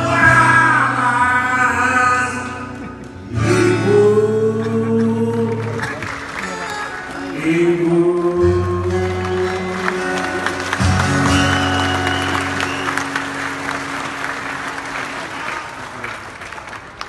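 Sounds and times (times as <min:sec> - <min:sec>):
acoustic guitar chords: 0:00.0 - 0:15.2
audience applauding: 0:04.8 - 0:17.0.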